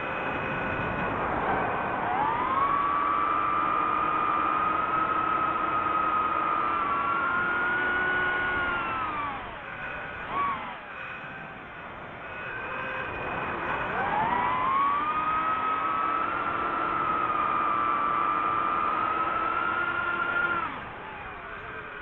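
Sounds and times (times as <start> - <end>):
drone motors whining: 0.0 - 22.0.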